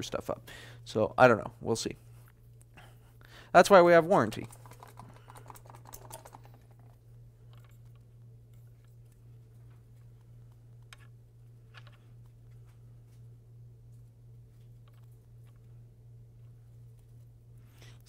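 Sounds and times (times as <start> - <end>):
low electrical hum: 0.0 - 18.0.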